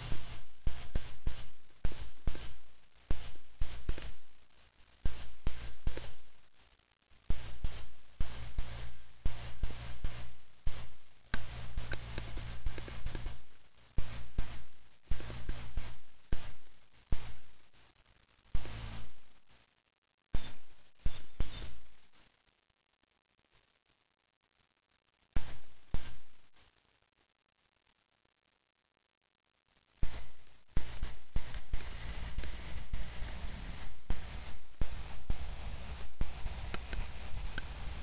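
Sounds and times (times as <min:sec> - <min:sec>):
crackling clicks and pops: 0:00.0 - 0:38.0
low hum: 0:30.0 - 0:38.0.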